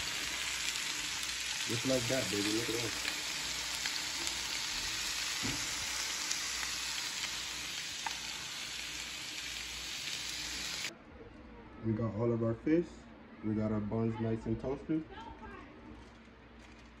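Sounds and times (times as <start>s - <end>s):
fish sizzling in oil: 0.0s - 10.9s.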